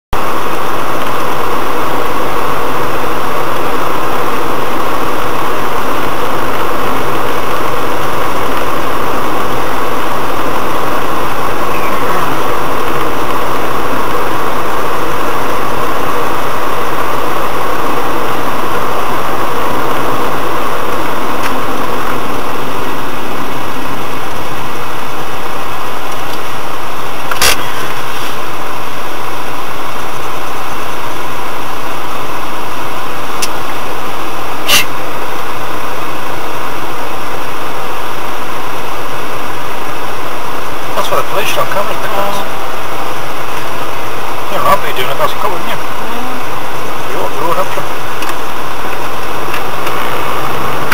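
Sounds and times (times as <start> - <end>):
car cabin road and engine noise: 0.2 - 50.9.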